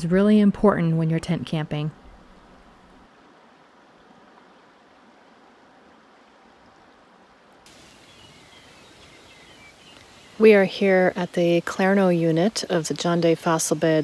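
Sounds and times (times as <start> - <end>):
open-air background hiss: 0.0 - 14.0
river rushing: 2.6 - 14.0
faint chirps: 7.7 - 10.7.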